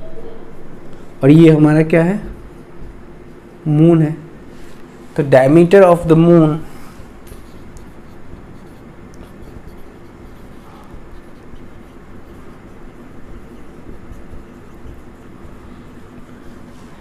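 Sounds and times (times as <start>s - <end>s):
steady low hum: 0.0s - 17.0s
marker scratching on whiteboard: 1.3s - 3.6s, 7.1s - 17.0s.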